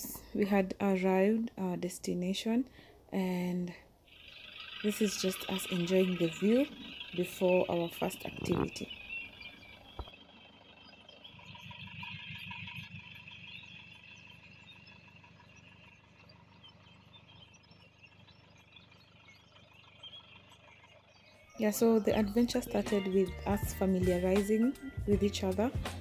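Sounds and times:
wildlife chirping: 3.9s - 26.0s.

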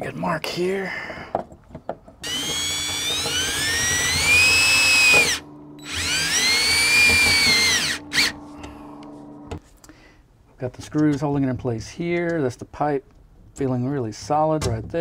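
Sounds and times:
cordless drill driving screws: 2.2s - 8.4s.

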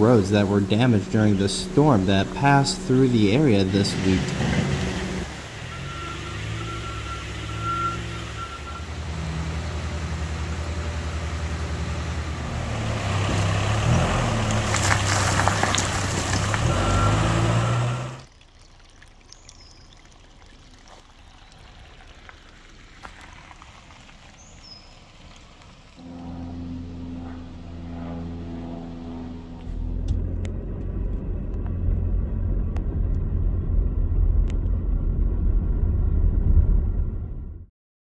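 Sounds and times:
shallow water running: 0.0s - 17.6s, 18.2s - 26.0s
diesel engine running: 0.0s - 18.3s, 24.0s - 37.7s
backup alarm beeping: 5.7s - 9.0s
bucket clattering with rocks: 14.5s - 16.7s.

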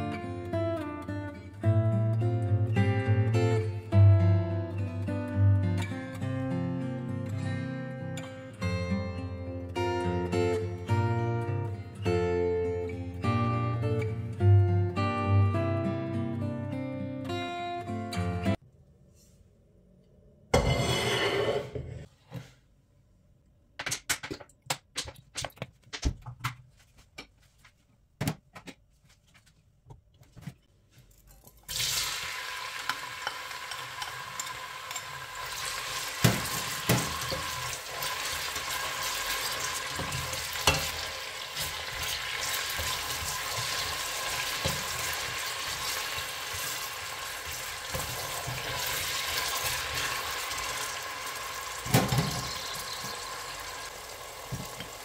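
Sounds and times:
spatula scraping a pot: 20.6s - 22.1s
onions sizzling in a pot: 31.7s - 55.0s.

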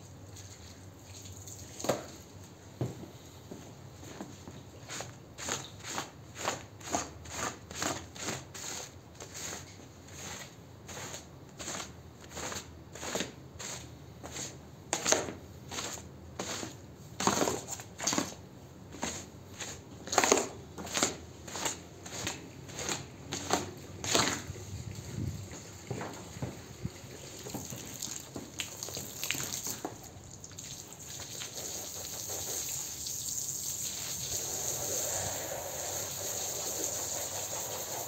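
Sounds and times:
squeegee swishing through wet rug: 4.8s - 18.3s, 19.0s - 38.0s.

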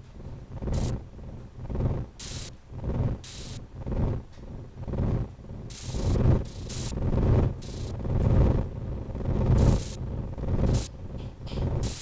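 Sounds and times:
short bursts of hiss: 2.2s - 2.5s, 3.2s - 3.6s, 5.7s - 7.0s, 7.6s - 7.9s, 9.6s - 10.0s, 10.7s - 10.9s
low throbbing pulse: 4.8s - 10.9s.

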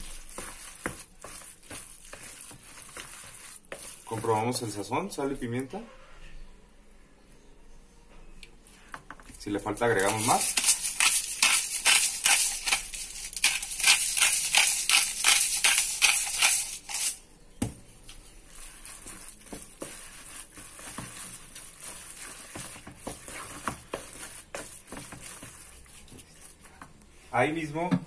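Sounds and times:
spoon scraping bowl: 0.0s - 4.8s, 9.3s - 17.2s, 18.2s - 26.9s.

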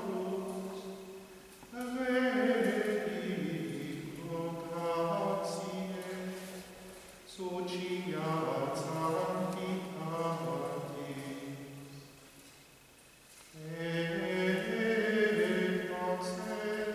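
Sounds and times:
man chanting plainchant: 0.0s - 12.1s, 13.5s - 16.9s.

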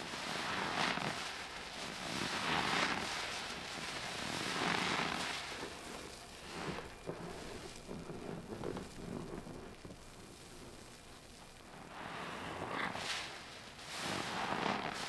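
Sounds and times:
sponge squishing: 0.0s - 15.0s.

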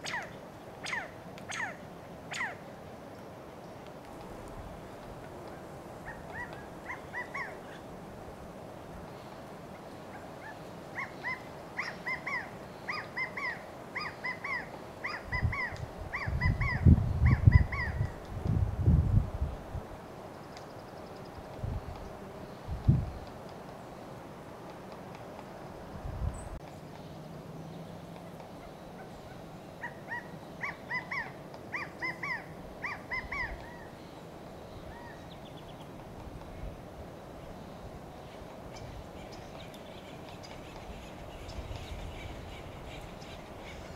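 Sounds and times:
quail calling: 6.0s - 7.8s, 10.1s - 18.0s, 28.6s - 33.9s
wind rumble on microphone: 15.2s - 20.0s, 21.3s - 23.2s, 25.8s - 26.6s, 36.0s - 43.9s.

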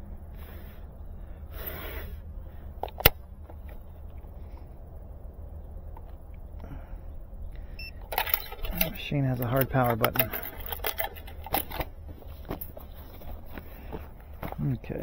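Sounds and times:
handling rustles: 8.0s - 15.0s.

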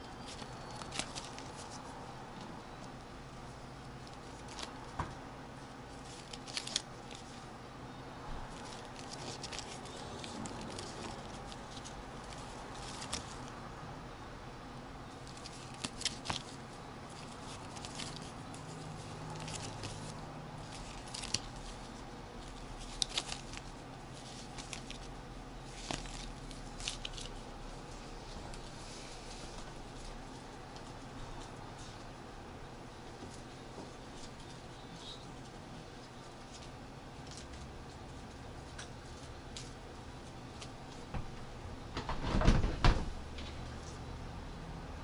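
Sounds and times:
faint room hum: 0.0s - 45.0s
paper tickets rustling: 0.1s - 1.9s, 5.9s - 7.4s, 8.5s - 13.5s, 15.2s - 32.1s.

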